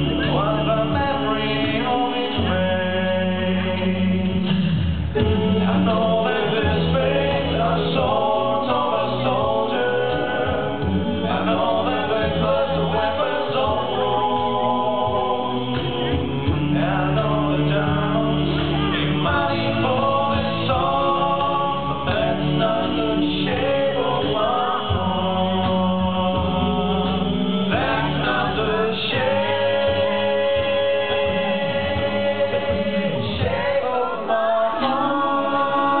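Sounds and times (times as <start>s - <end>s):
male vocal group singing a cappella: 0.0s - 36.0s.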